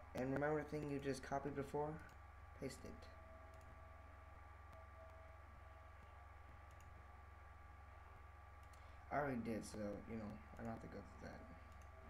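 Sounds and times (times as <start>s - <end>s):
low hum: 0.0s - 12.0s
computer mouse clicks: 3.5s - 3.7s, 6.0s - 7.0s, 8.6s - 8.9s, 11.7s - 12.0s.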